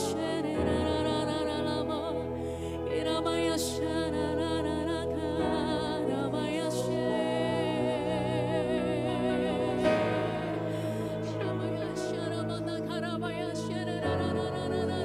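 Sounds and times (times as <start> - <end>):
woman and man singing: 3.0 - 15.0.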